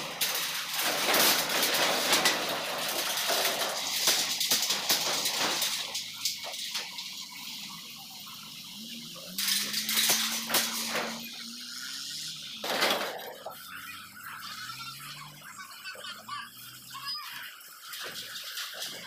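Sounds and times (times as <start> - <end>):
metallic clanks on steel ramp: 0.0 - 7.2, 9.4 - 11.4
vehicle engines: 0.0 - 19.0.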